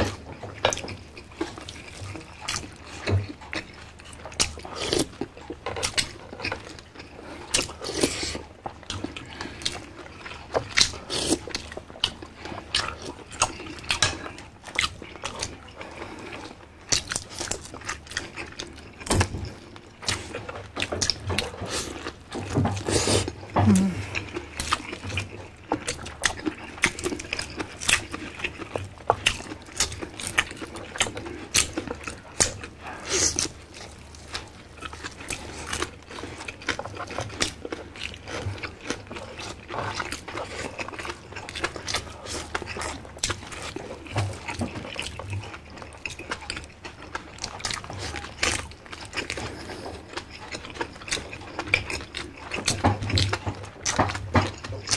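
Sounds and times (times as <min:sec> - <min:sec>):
wet chewing and lip smacks: 0:00.0 - 0:54.9
slurping: 0:22.8 - 0:24.9.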